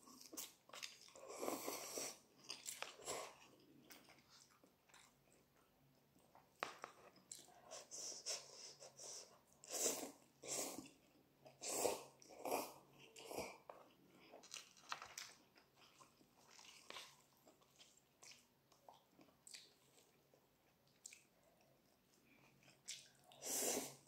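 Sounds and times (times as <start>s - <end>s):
chewing: 0.0s - 7.7s, 10.8s - 23.4s
person slurping noodles: 9.6s - 10.9s, 11.6s - 13.6s.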